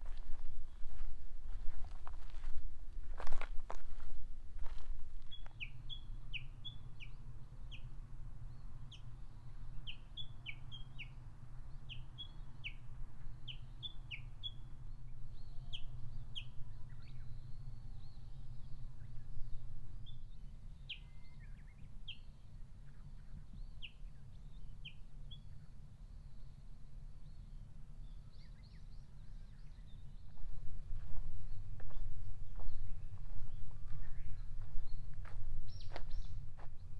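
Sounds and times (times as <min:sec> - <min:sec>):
footsteps on forest path: 0:00.0 - 0:05.7, 0:30.2 - 0:36.9
small birds calling: 0:27.2 - 0:36.9.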